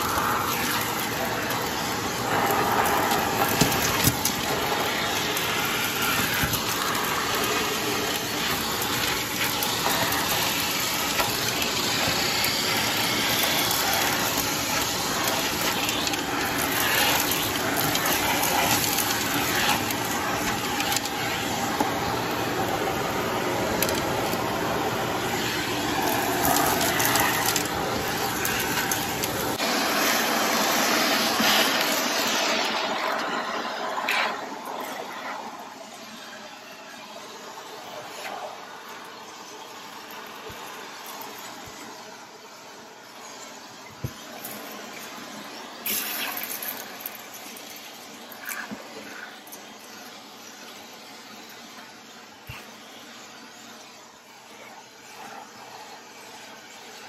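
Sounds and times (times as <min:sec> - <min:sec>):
debris crackling in vacuum hose: 0:00.0 - 0:35.1, 0:44.0 - 0:51.6
vacuum cleaner running: 0:00.0 - 0:57.0.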